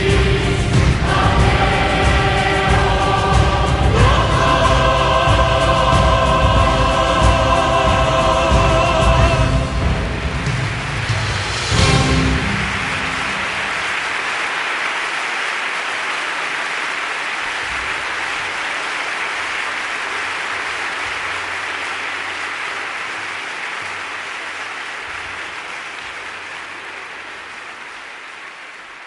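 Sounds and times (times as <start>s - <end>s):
audience applause: 9.0s - 29.0s.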